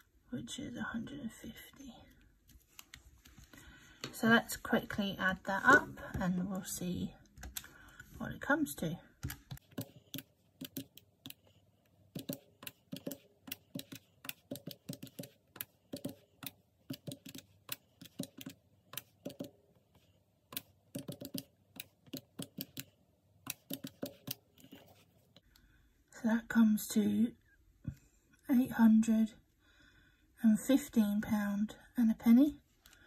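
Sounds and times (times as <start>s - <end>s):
calculator keys clicking: 12.2s - 19.6s, 20.5s - 22.9s.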